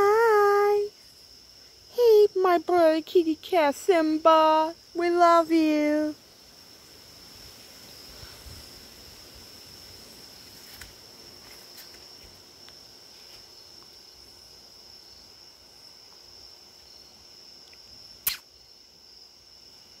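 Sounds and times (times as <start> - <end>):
crickets chirping: 0.0 - 20.0
faint ticks: 17.6 - 18.4
sharp click: 17.7 - 18.5.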